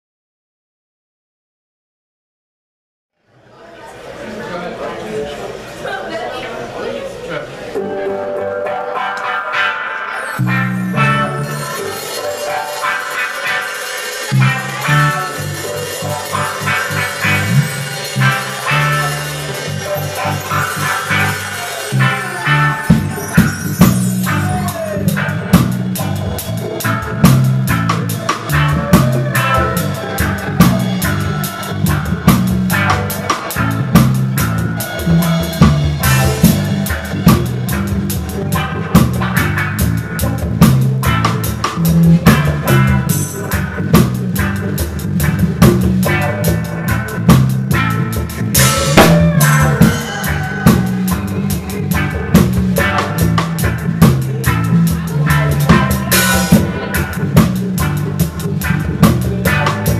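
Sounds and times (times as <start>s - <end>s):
reggae band playing live: 7.7s - 59.9s
bass line: 7.8s - 59.9s
loud close drums: 13.1s - 59.9s.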